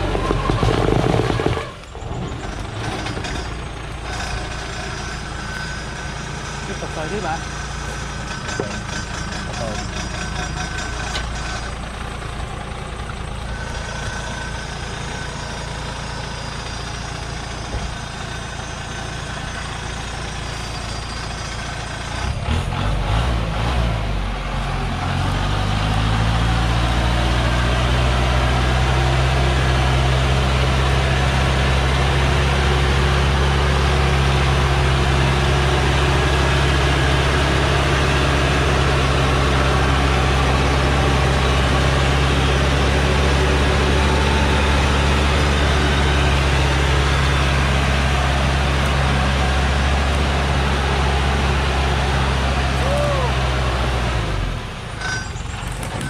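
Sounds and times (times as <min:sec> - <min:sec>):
truck diesel engine straining: 0:00.0 - 0:56.0.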